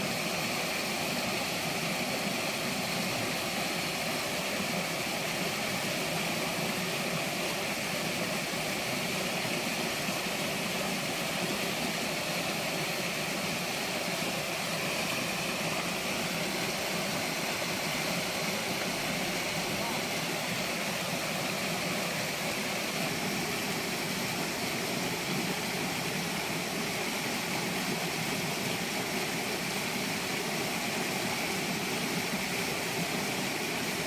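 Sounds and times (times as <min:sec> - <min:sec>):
river water rushing over rapids: 0:00.0 - 0:34.0.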